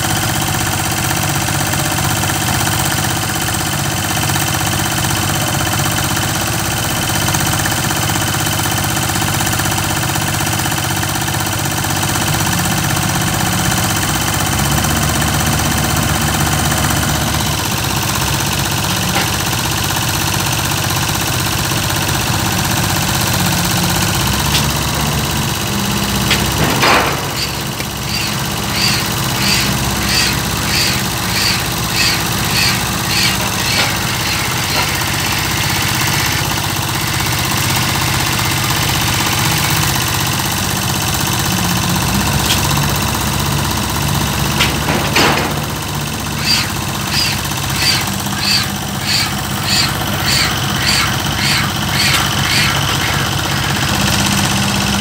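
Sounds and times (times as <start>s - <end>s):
diesel engine running: 0.0s - 55.0s
pile hammer strokes: 26.1s - 36.4s, 44.6s - 54.0s.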